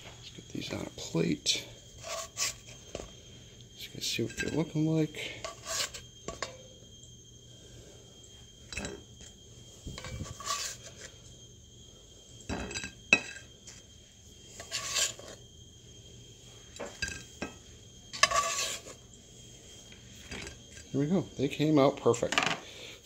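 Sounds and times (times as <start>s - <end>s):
spatula scraping in a pot: 1.9s - 3.2s, 5.3s - 6.7s, 9.9s - 11.3s, 14.4s - 15.4s, 16.9s - 20.9s.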